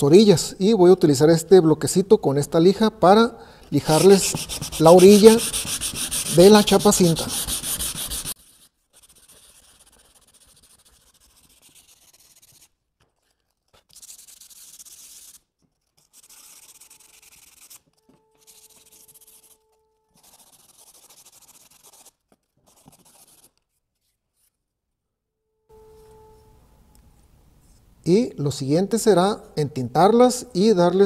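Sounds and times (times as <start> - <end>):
sandpaper rubbing on wood: 3.8 - 12.7, 13.9 - 15.4.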